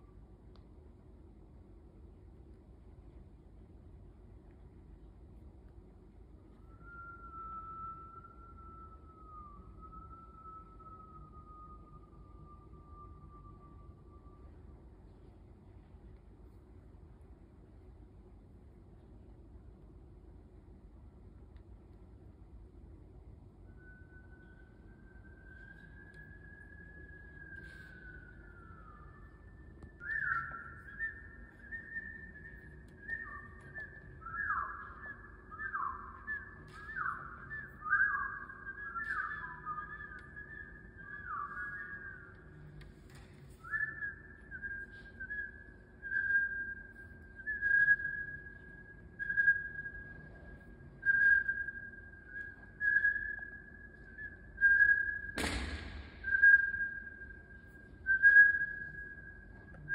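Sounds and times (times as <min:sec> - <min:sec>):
person whistling through hands: 0:06.5 - 0:15.9, 0:23.5 - 0:59.9
sharp smack: 0:55.3 - 0:56.6.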